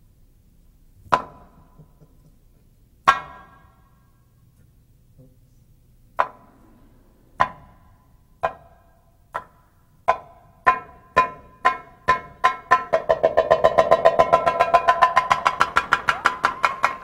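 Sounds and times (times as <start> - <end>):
goblet drum strokes: 6.2 - 9.6.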